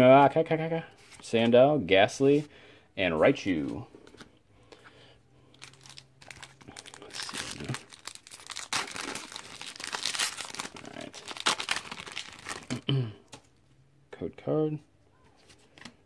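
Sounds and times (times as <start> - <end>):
foil wrapper crinkling and tearing: 5.6 - 12.8.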